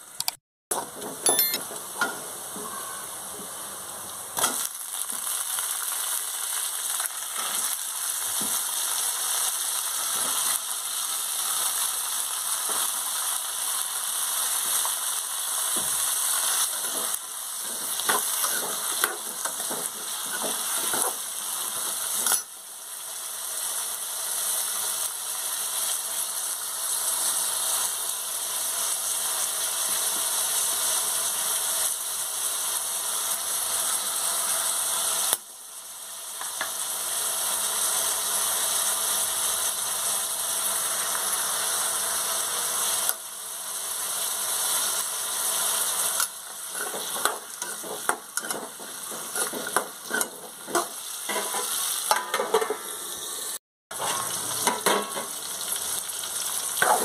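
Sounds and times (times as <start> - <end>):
potatoes sizzling in oil: 1.7 - 57.0
spoon scraping metal pan: 46.7 - 52.9.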